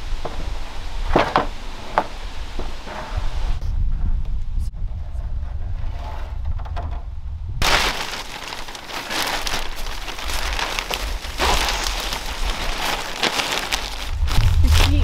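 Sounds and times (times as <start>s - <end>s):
low wind rumble on microphone: 0.0s - 15.0s
plastic sheeting crinkling: 7.6s - 15.0s.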